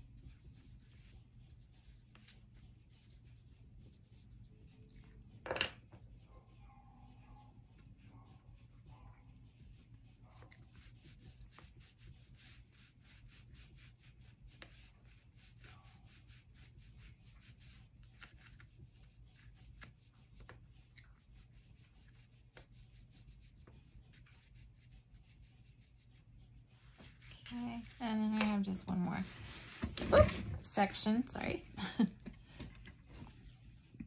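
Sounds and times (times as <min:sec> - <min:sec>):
oil pastel scratching on paper: 0:00.0 - 0:04.6, 0:09.4 - 0:26.4.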